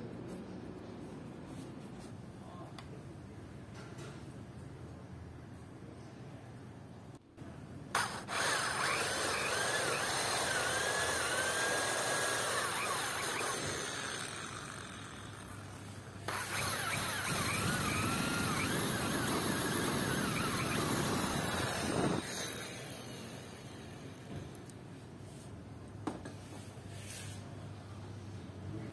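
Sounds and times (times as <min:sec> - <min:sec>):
electric drill boring into wood: 0:08.0 - 0:24.3.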